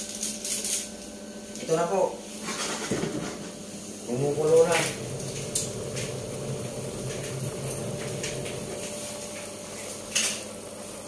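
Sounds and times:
water boiling in a pot: 3.0 - 11.0
low hum: 3.6 - 9.2.

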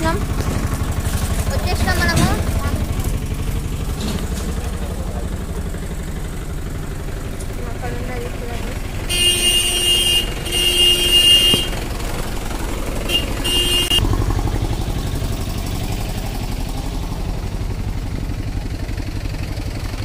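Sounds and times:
vehicle engine throbbing: 0.0 - 20.0
vehicle horn honking: 9.0 - 12.2, 13.0 - 14.2.

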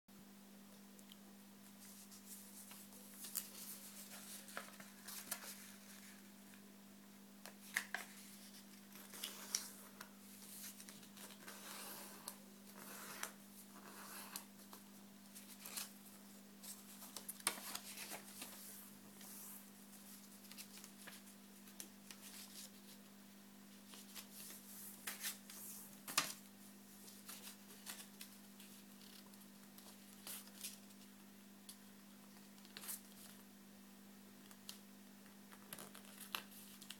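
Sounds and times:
paper rustling and crinkling: 1.8 - 6.6, 7.5 - 23.0, 23.8 - 31.1, 35.5 - 36.9.

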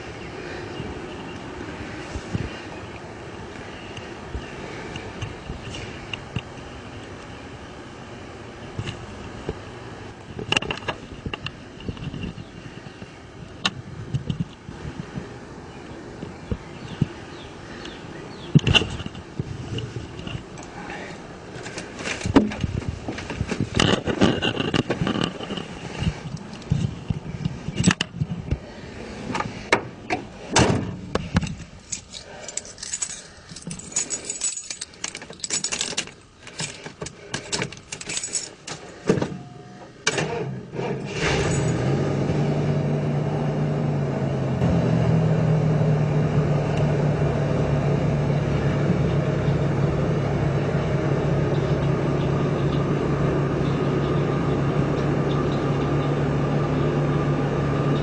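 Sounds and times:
van engine starting and idling: 34.9 - 58.0.

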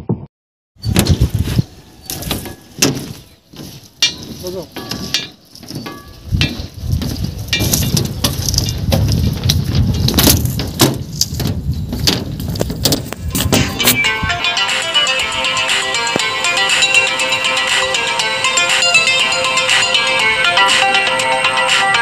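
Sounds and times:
wind rumbling on microphone: 0.0 - 14.4
footsteps on bridge deck: 0.9 - 14.2.

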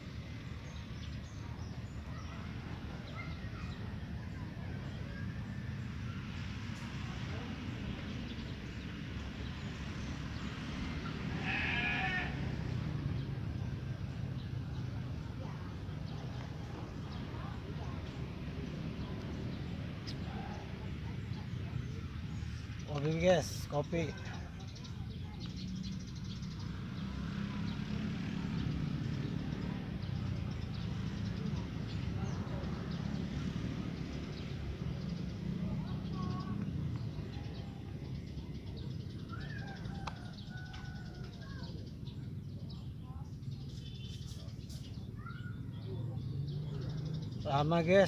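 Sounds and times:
goat bleating: 11.3 - 12.4.

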